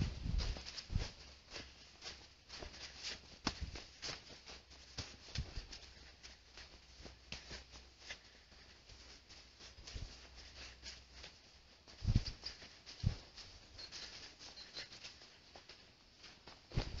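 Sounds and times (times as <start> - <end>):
dull low thumps: 0.0 - 1.2
footsteps crunching on sand: 0.0 - 14.4.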